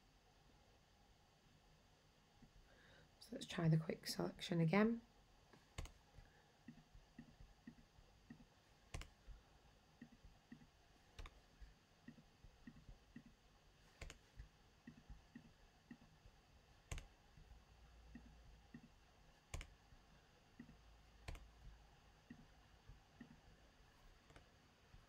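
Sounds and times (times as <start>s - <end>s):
soft ticks: 5.5s - 9.2s, 10.0s - 13.4s, 14.0s - 16.1s, 16.9s - 19.7s, 20.5s - 23.5s
computer mouse clicks: 5.5s - 9.4s, 10.0s - 16.2s, 16.8s - 19.9s, 20.6s - 22.5s, 23.2s - 23.5s, 24.1s - 24.5s.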